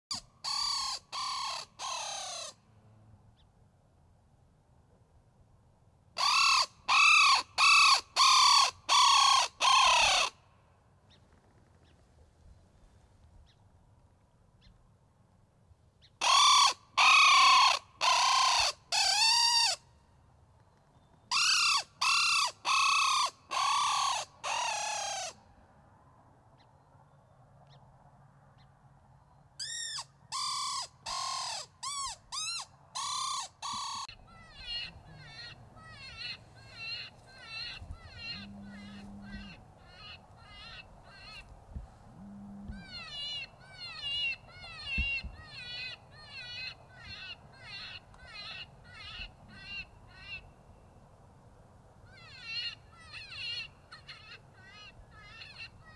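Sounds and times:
electronic cawing calls: 0.1 - 2.6, 6.2 - 10.4, 16.2 - 19.8, 21.3 - 25.4, 29.6 - 41.5, 42.2 - 50.5.

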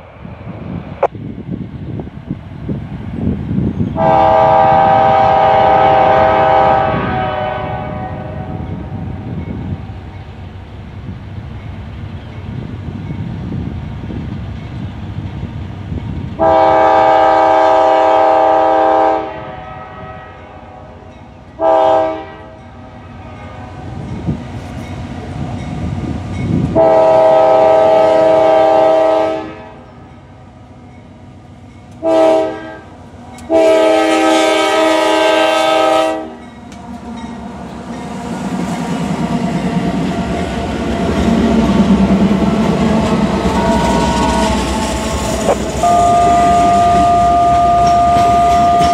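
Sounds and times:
diesel locomotive engine: 0.0 - 48.9
train wheels on rails: 0.0 - 48.9
train air horn blasts: 4.0 - 9.3, 16.4 - 24.0, 26.7 - 29.9, 32.0 - 32.9, 33.5 - 36.4, 42.4 - 48.9.

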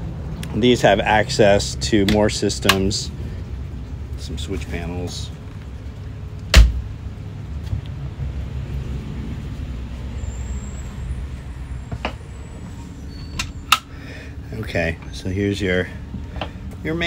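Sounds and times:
steady low rumble: 0.0 - 10.2.

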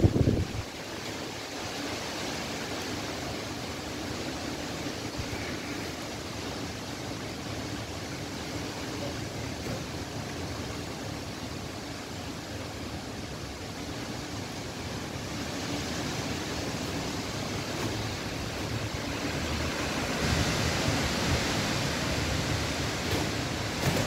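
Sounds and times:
strong wind gusting through trees: 0.0 - 24.0.

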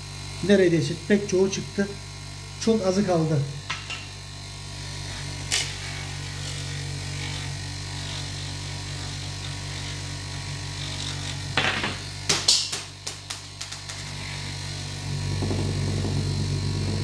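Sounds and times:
bench grinder motor running: 0.0 - 17.0
sharp clicks and clatter: 12.4 - 14.1.

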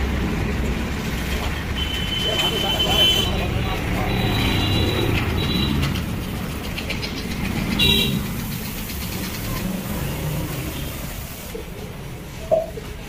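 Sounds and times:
road traffic rumbling: 0.0 - 13.0
vehicle horn toot: 1.8 - 5.8, 7.8 - 8.2
steady hiss: 7.6 - 12.4.

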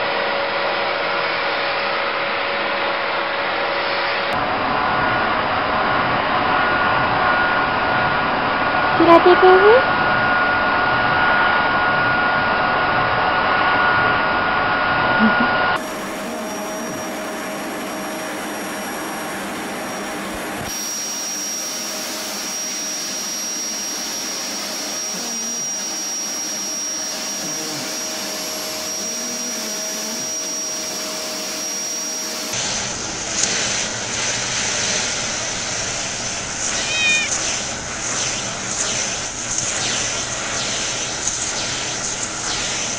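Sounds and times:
vacuum cleaner motor whining: 14.8 - 42.9.

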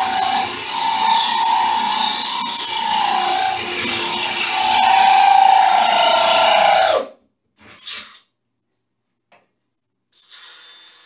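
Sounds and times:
cordless drill boring into tile: 0.0 - 7.0.

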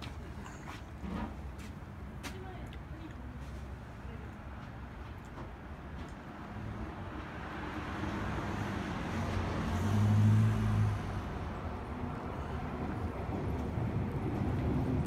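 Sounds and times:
traffic noise: 0.0 - 15.0
vehicle engine passing: 6.5 - 15.0.

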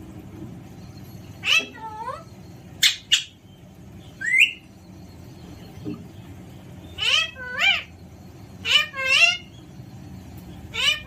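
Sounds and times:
parakeet rising chirp: 0.8 - 5.8, 6.7 - 11.0.

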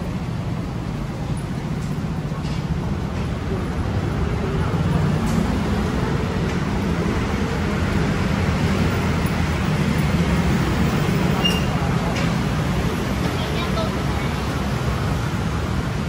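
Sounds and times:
low rumble of road traffic: 0.0 - 16.0.

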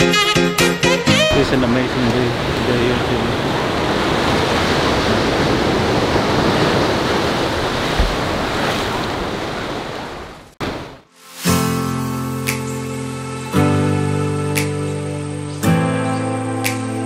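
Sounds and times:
music: 0.0 - 1.9, 11.2 - 17.0
ocean surf washing ashore: 1.1 - 14.1
wind buffeting microphone: 1.4 - 10.9.

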